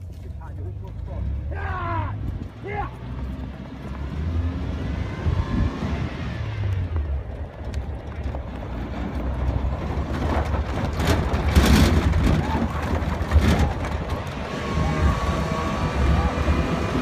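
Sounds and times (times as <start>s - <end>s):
horses galloping on sand: 0.0s - 1.4s, 2.0s - 4.4s, 6.7s - 15.4s
wind buffeting microphone: 4.9s - 17.0s.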